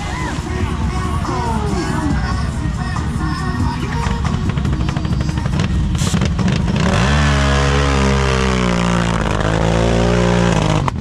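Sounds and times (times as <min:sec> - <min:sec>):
engine revving hard: 0:05.6 - 0:11.0.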